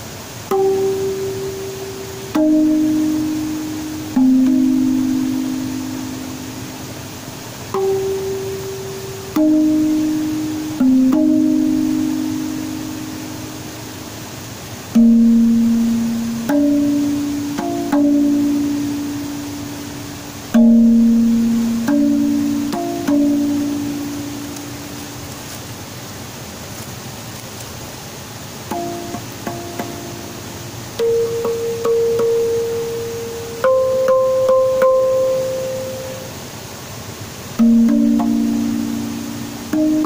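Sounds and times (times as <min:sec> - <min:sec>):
slow plucked-string notes: 0:00.0 - 0:25.4, 0:28.7 - 0:36.4, 0:37.5 - 0:40.0.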